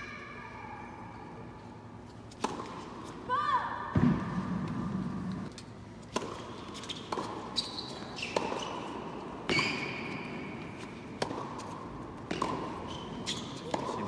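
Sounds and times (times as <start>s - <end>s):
shoes squeaking on court: 6.0s - 14.0s
tennis ball hits: 8.2s - 10.1s, 11.1s - 14.0s.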